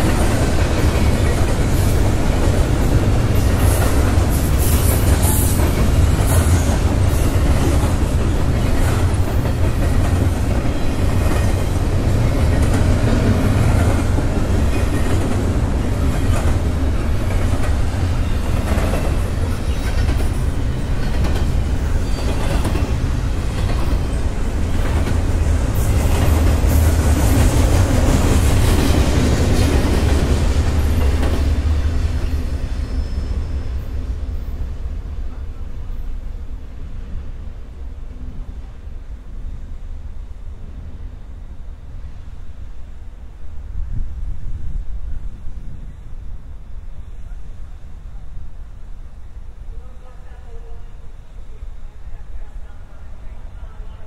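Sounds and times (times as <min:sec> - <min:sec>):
wheels clacking over rail joints: 0:00.0 - 0:31.8
freight train rolling past: 0:00.0 - 0:54.0.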